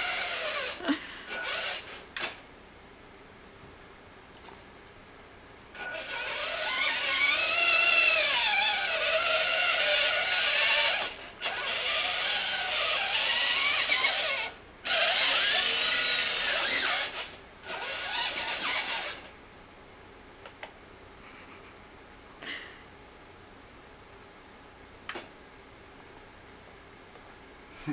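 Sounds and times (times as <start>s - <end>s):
electric motors whining: 0.0s - 2.4s, 5.7s - 19.3s.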